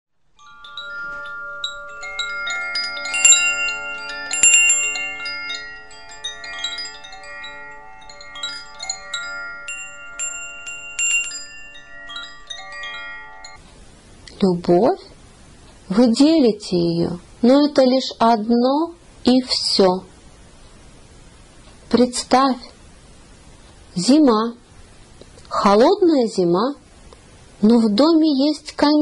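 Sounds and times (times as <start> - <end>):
wind chimes ringing: 0.3 - 13.6.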